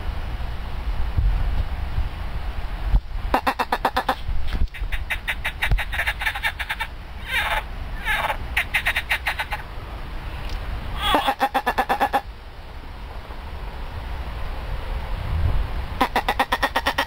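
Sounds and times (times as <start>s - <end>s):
frogs croaking: 3.3s - 9.7s, 11.0s - 12.3s, 16.0s - 17.0s.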